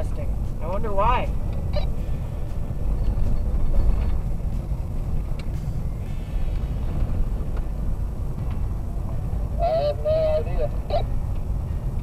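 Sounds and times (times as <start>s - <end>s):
car rumbling on gravel road: 0.0s - 12.0s.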